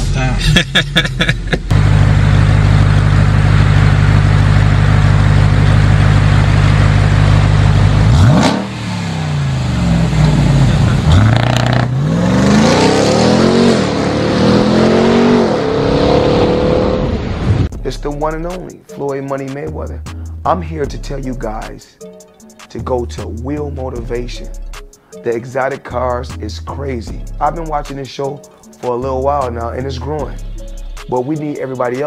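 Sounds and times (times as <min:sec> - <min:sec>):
car engine idling and revving: 0:00.0 - 0:17.7.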